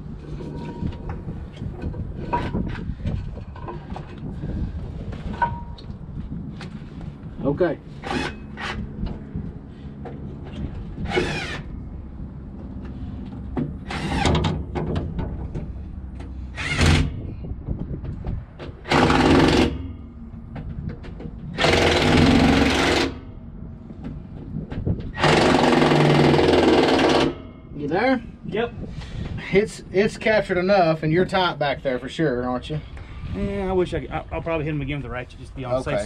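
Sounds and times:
power wrench running: 11.1 - 11.7, 16.6 - 17.1, 18.8 - 19.9, 21.6 - 23.2, 25.2 - 27.4.

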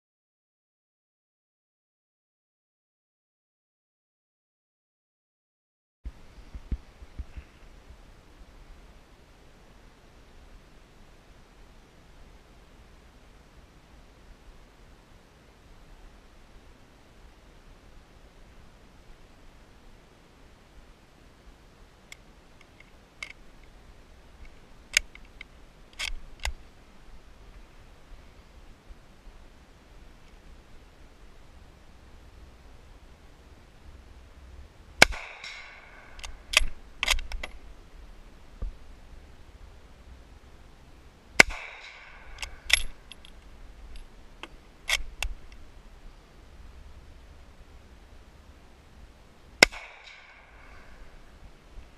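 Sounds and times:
rifle loading clicks: 24.9 - 26.6, 35.0 - 37.6, 41.4 - 45.6
rifle mechanism rattle: 35.4 - 37.6, 41.4 - 44.1.

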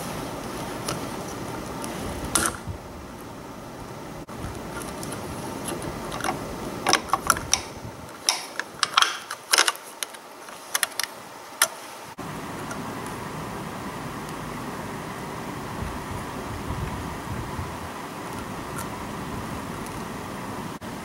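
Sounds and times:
rustling handling: 0.0 - 2.6, 4.3 - 12.8
sharp plastic clicks: 4.8 - 11.8.

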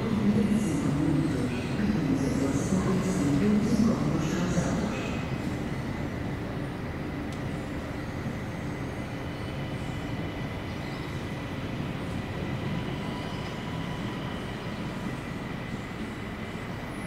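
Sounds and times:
electric train low rumble: 0.0 - 17.0.

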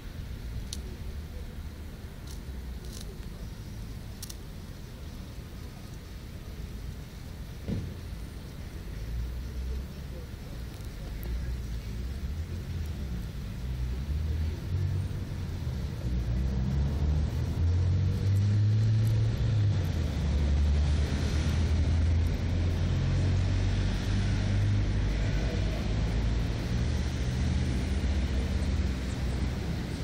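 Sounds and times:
motor vehicle engine rumbling: 0.0 - 30.0.

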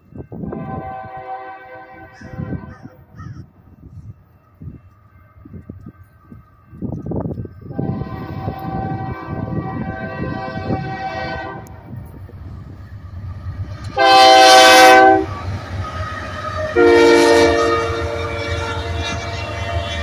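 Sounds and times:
locomotive rumble: 0.0 - 20.0
locomotive air horn blasts: 0.4 - 3.0, 7.7 - 12.0, 13.9 - 20.0.

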